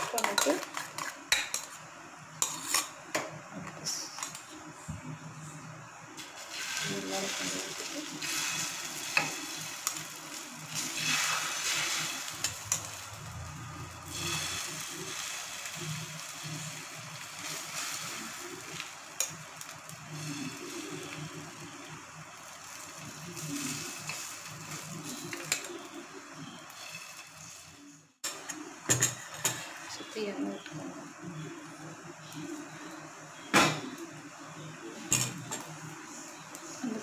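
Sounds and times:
batter sizzling on a griddle: 0:00.1 - 0:03.0, 0:06.2 - 0:37.0.

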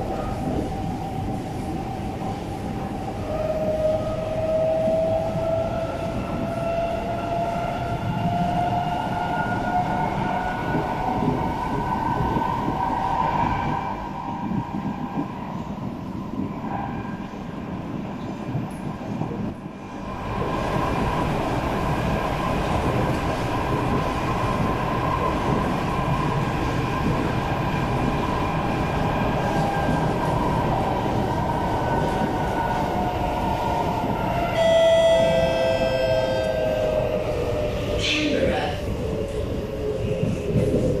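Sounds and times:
train wheels rumbling: 0:00.0 - 0:41.0
loud ringing tone: 0:34.5 - 0:36.7.

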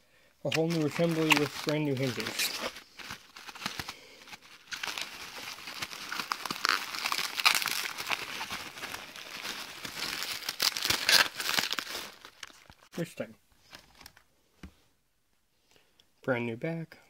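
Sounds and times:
bubble wrap crinkling: 0:00.5 - 0:12.9.

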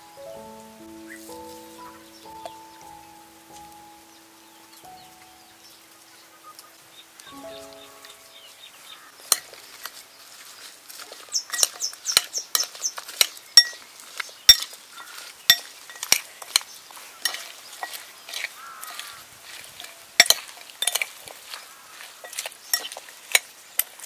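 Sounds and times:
metal spoon clinking in ceramic bowl: 0:11.5 - 0:12.7, 0:13.6 - 0:13.8, 0:15.5 - 0:16.6, 0:17.3 - 0:18.5, 0:19.8 - 0:21.1, 0:22.2 - 0:24.0.

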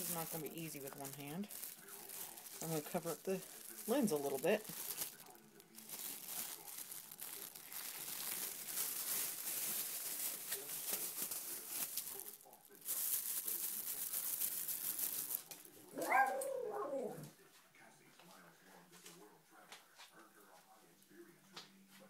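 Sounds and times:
rustling and crinkling: 0:00.0 - 0:17.4
small dog whining: 0:16.0 - 0:17.3.

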